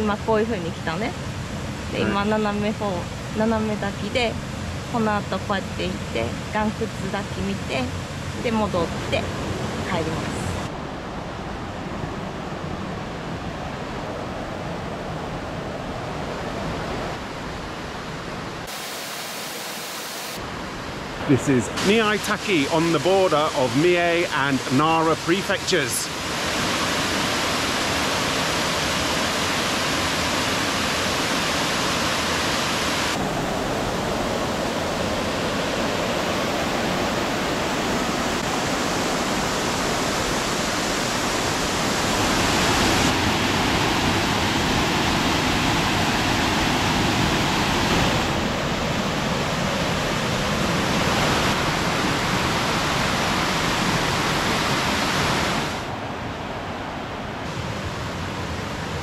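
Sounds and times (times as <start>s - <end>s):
waterfall rushing: 0.8s - 2.5s, 18.6s - 59.0s.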